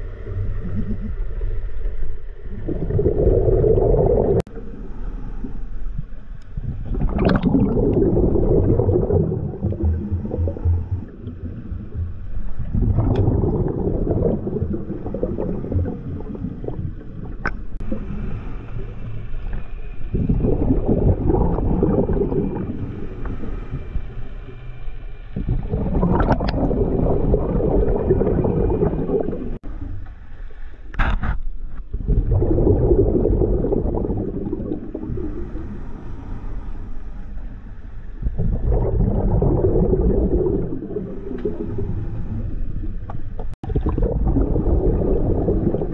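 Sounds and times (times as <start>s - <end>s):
regulator bubbles rushing: 2.4s - 4.6s, 6.5s - 24.0s, 25.4s - 29.8s, 31.9s - 35.7s, 38.2s - 45.9s
diver inhaling: 35.0s - 38.0s.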